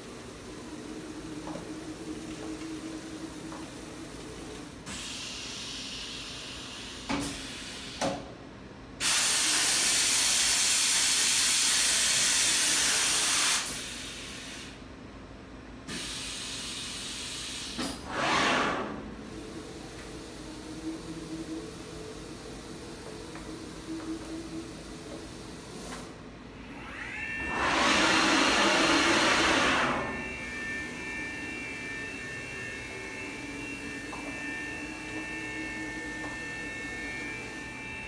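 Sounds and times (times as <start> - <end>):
machine hum: 18.0 - 38.0.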